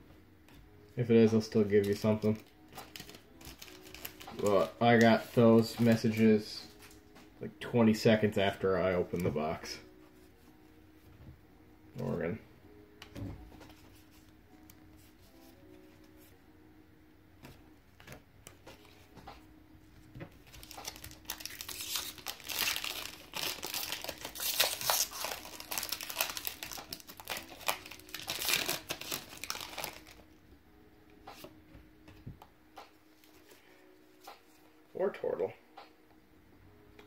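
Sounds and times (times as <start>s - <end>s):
foil wrapper tearing and crinkling: 1.9s - 6.2s, 20.4s - 30.2s.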